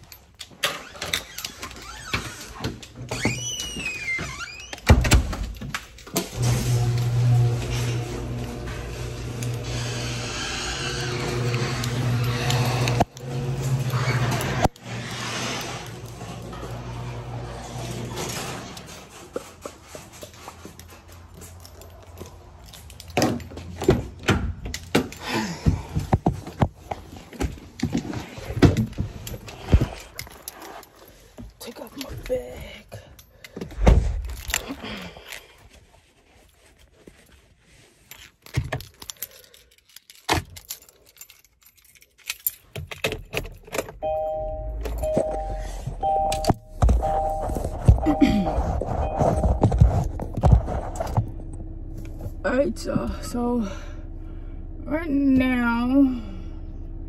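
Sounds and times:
car keys jangling: 0:18.9 - 0:25.2, 0:28.3 - 0:33.6, 0:38.1 - 0:48.1
two-note car warning chime: 0:44.0 - 0:50.2
low engine rumble: 0:44.2 - 0:57.0
footstep thumps: 0:45.2 - 0:51.5.

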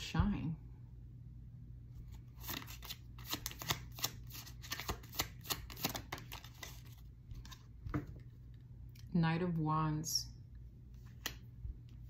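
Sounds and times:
cards being shuffled: 0:02.0 - 0:08.3, 0:11.0 - 0:11.4.

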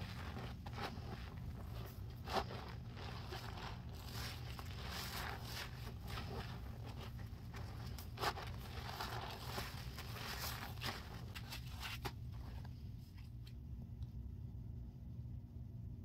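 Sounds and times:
sponges squelching: 0:00.0 - 0:12.7.

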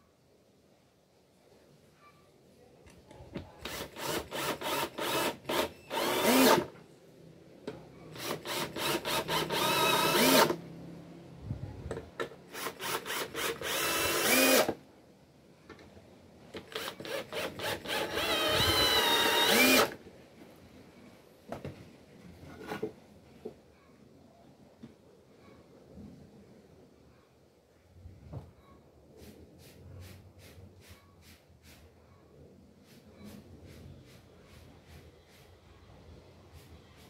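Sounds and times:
cordless drill driving screws into wood: 0:03.6 - 0:06.7, 0:08.1 - 0:10.6, 0:12.2 - 0:14.8, 0:16.6 - 0:20.0.

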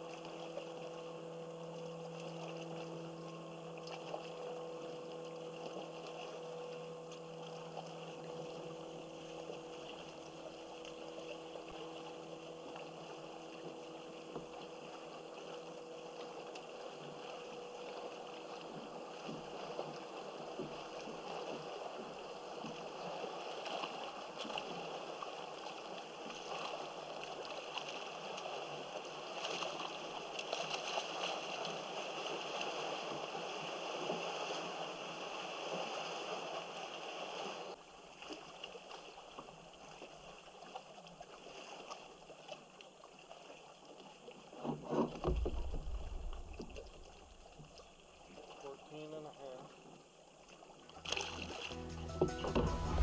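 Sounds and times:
water lapping against a hull: 0:00.0 - 0:51.8.

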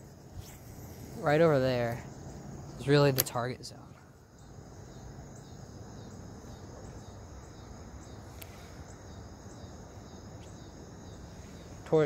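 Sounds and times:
crickets trilling: 0:00.0 - 0:12.0
sharp click: 0:03.1 - 0:03.4.

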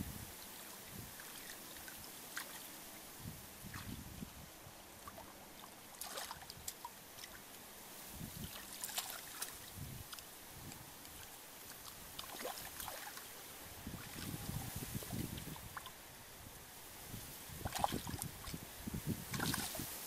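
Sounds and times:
small splashes in shallow water: 0:00.4 - 0:04.3, 0:04.9 - 0:16.0, 0:17.5 - 0:18.6, 0:19.2 - 0:20.0
wet squelches in mud: 0:05.0 - 0:07.6, 0:08.4 - 0:13.3.

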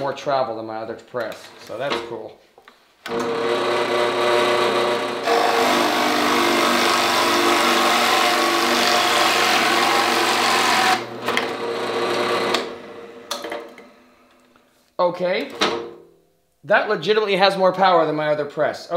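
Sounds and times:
drill press motor hum: 0:03.0 - 0:13.8
drill bit rasping into wood: 0:03.1 - 0:12.7.

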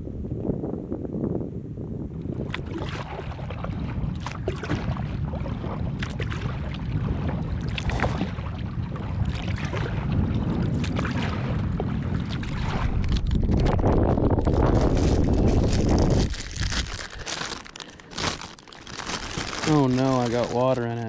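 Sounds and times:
wind rumble on microphone: 0:00.0 - 0:21.0
paddle splashes and drips: 0:02.3 - 0:13.4
waves against kayak hull: 0:02.4 - 0:13.3, 0:17.2 - 0:21.0.

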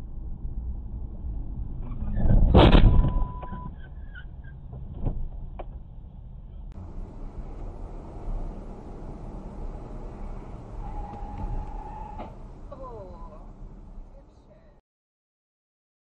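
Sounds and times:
road rumble inside car: 0:00.0 - 0:14.8
loud vehicle crash: 0:01.8 - 0:04.0, 0:06.8 - 0:14.0
steady beep: 0:13.0 - 0:13.5.

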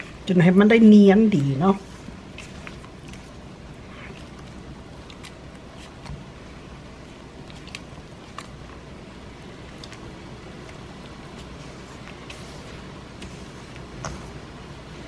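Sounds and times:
hands mixing wet batter in bowl: 0:00.0 - 0:15.0
steady low hiss: 0:00.0 - 0:15.0.

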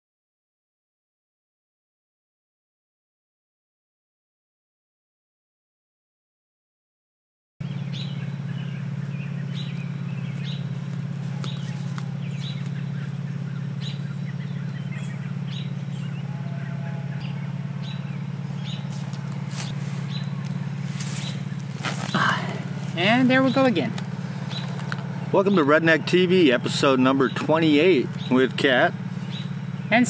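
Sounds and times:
bird chirping: 0:07.6 - 0:30.0
steady low hum: 0:07.6 - 0:30.0.

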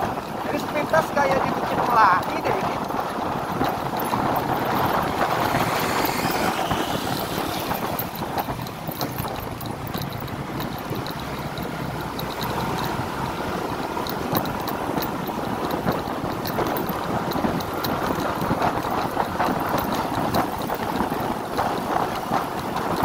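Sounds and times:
scooter engine running: 0:00.0 - 0:23.0
wind rushing over microphone: 0:00.0 - 0:23.0.

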